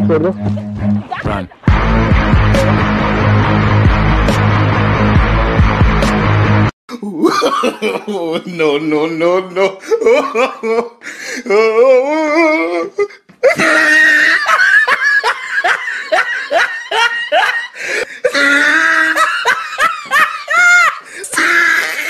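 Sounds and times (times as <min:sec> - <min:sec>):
people laughing hard: 0:07.1 - 0:11.0, 0:13.4 - 0:22.0.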